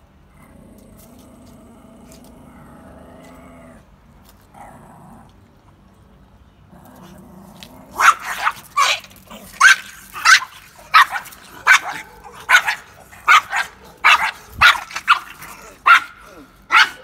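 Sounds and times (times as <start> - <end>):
dogs barking sharply: 8.0 - 17.0.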